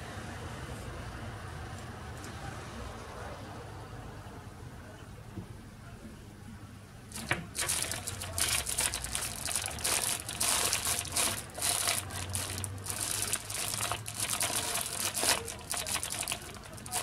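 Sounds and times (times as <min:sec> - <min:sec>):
plastic bag crinkling: 0:07.1 - 0:17.0.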